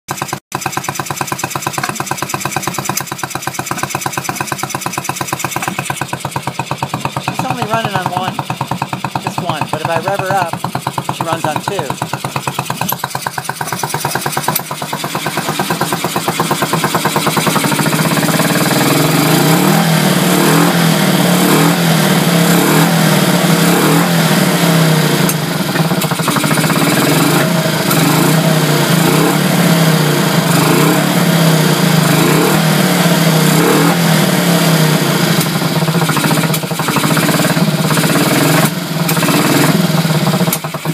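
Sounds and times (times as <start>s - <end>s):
motorcycle engine revving: 0.1s - 40.9s.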